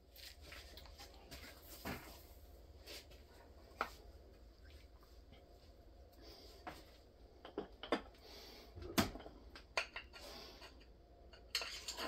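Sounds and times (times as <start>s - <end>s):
tools handled against metal: 9.8s - 12.0s.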